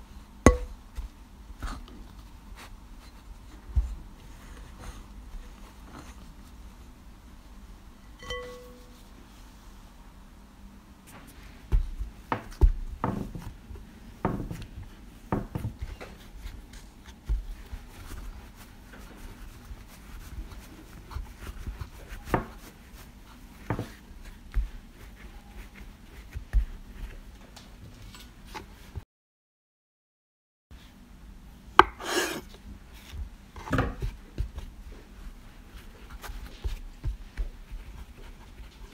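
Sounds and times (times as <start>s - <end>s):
soft rubbing of dough: 0.0s - 29.0s, 30.8s - 38.9s
dough thumping on wood: 0.5s - 1.2s, 11.7s - 13.6s, 14.2s - 19.2s, 20.4s - 22.8s, 23.6s - 25.3s, 26.1s - 27.3s, 31.8s - 32.2s, 33.1s - 35.0s, 36.1s - 38.2s.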